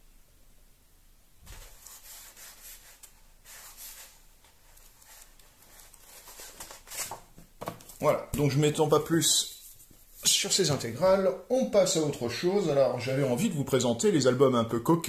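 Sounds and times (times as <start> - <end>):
book pages turning: 1.5 - 8.5.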